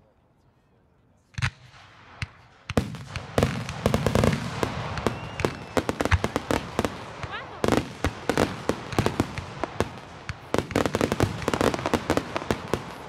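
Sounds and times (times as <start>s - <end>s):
fireworks booms: 1.4s - 13.0s
fireworks crackling: 1.4s - 13.0s
sharp firework bangs: 1.4s - 13.0s.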